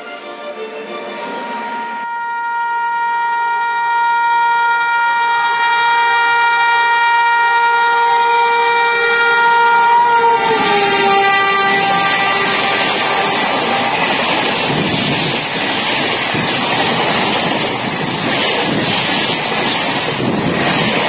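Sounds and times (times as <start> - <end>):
passing train rushing: 0.0 - 21.0
locomotive horn blast: 0.1 - 14.3.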